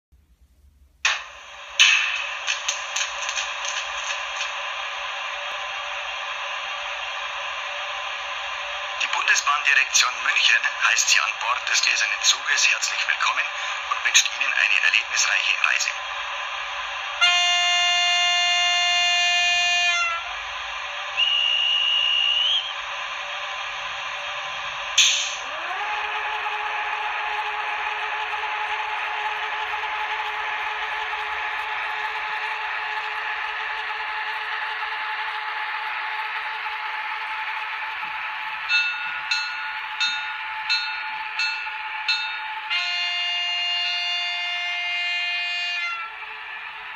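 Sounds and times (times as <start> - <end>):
model railcar whirring hum: 1.0 - 46.9
multi-tone train horn: 17.2 - 20.5, 41.8 - 46.8
high train whistle: 17.2 - 23.0, 25.0 - 46.9.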